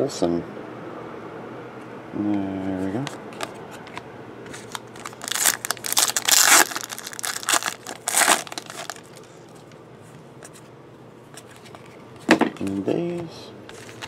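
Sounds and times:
foil wrapper crinkling and tearing: 0:04.6 - 0:09.3, 0:13.7 - 0:14.0.

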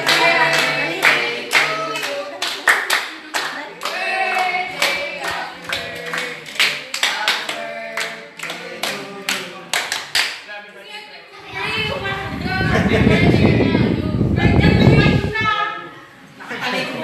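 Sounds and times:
people clapping in time: 0:00.0 - 0:10.4
group singing birthday song: 0:00.0 - 0:10.8, 0:11.4 - 0:17.0.

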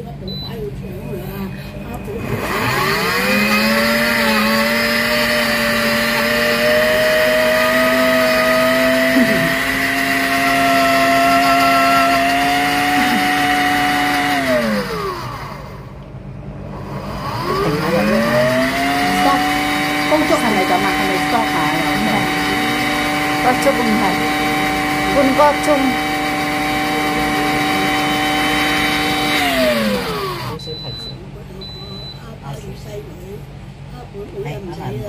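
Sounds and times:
blender motor whining: 0:02.0 - 0:30.6.

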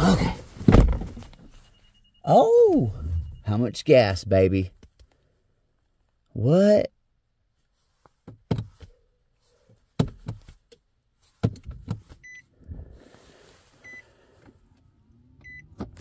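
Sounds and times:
car warning chime beeping: 0:01.4 - 0:04.2, 0:12.2 - 0:12.5, 0:13.8 - 0:14.1, 0:15.4 - 0:15.8.

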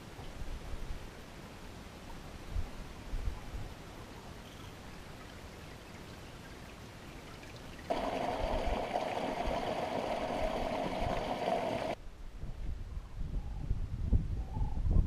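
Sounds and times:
meltwater trickling cascade: 0:05.0 - 0:12.0.

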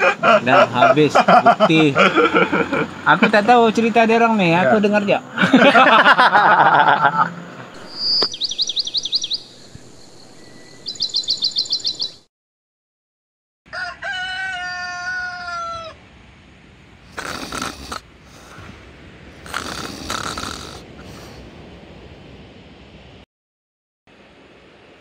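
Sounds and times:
bird chirping rapidly: 0:07.8 - 0:12.3
rooster crowing: 0:13.7 - 0:16.0.

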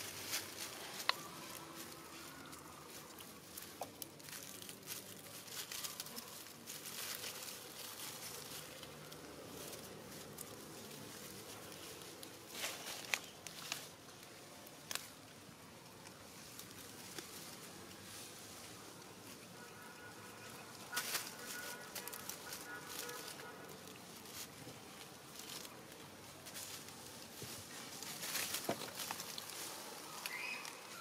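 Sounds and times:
twigs snapping: 0:00.0 - 0:07.3, 0:11.6 - 0:17.3, 0:28.0 - 0:31.0
dry leaves rustling and crackling: 0:00.0 - 0:31.0.

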